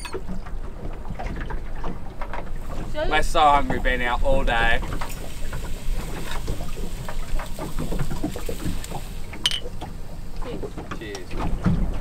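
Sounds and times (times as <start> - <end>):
glass bottles clinking: 0.0 - 0.3, 9.4 - 9.8
water around a boat: 0.0 - 12.0
wind: 0.0 - 12.0.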